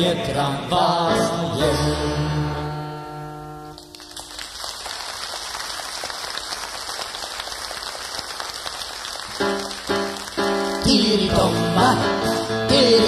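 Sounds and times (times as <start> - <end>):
audience applauding: 3.8 - 10.8.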